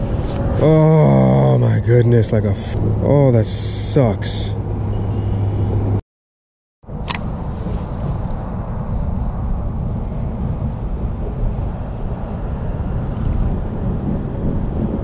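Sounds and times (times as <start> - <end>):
wind buffeting microphone: 6.9 - 15.0.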